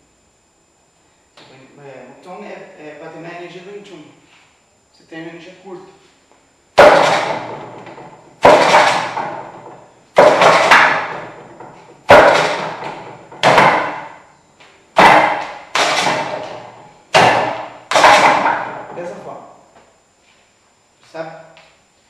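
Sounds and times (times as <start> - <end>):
sharp ringing wooden knocks: 6.8 - 14.3, 15.0 - 19.1.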